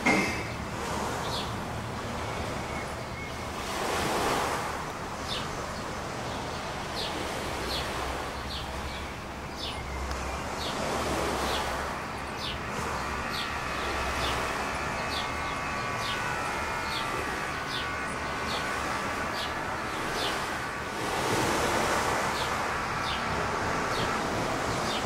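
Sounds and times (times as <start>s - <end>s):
sea surf washing in: 0.0s - 25.0s
wind: 0.0s - 25.0s.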